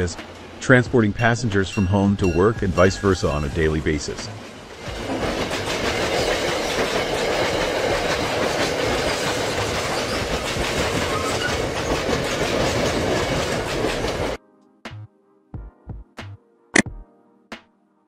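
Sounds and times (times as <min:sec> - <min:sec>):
train wheels rumbling on rails: 0:00.0 - 0:14.4
wheels clickety-clack on rail joints: 0:00.0 - 0:14.4.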